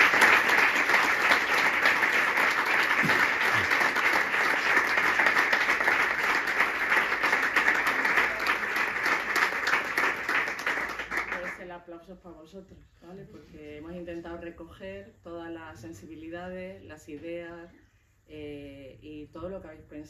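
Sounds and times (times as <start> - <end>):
audience applause: 0.0 - 11.6.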